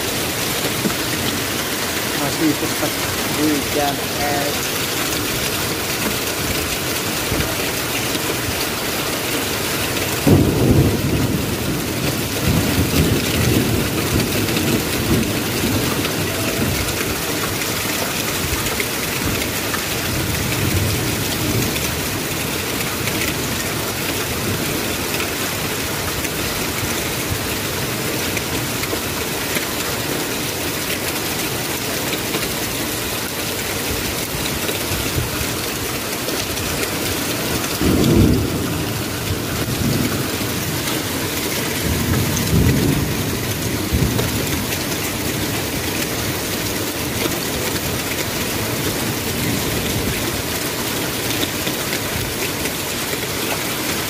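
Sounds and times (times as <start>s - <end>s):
hail and rain falling: 0.0s - 54.0s.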